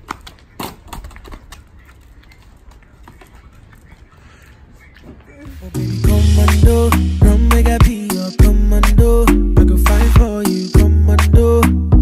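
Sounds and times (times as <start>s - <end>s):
footsteps on paving stones: 0.0s - 6.0s.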